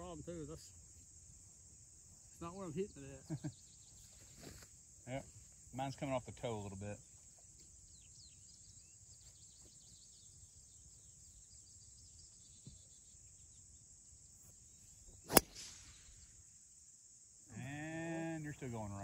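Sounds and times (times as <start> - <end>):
golf club striking ball: 15.3 - 16.0.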